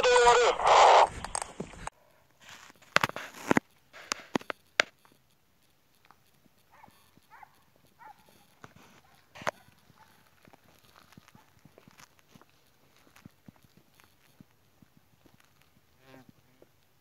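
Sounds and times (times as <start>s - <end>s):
footsteps on dirt track: 6.4s - 17.0s
dogs barking in distance: 6.7s - 11.7s.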